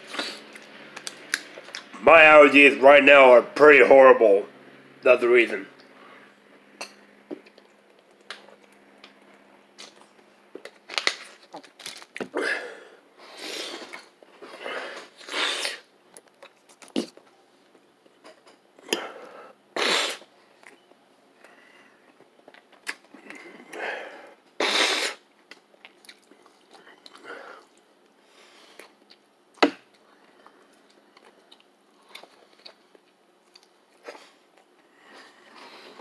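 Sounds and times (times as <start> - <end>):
person sniffing through congested nose: 0.0 - 0.5, 13.2 - 13.9, 14.5 - 15.9, 19.1 - 20.3, 23.8 - 25.2.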